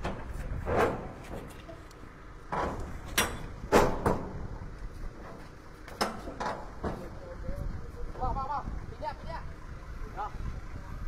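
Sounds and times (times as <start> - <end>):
metal container door clanks and rattles: 0.0 - 1.8, 2.5 - 4.5, 5.2 - 7.1.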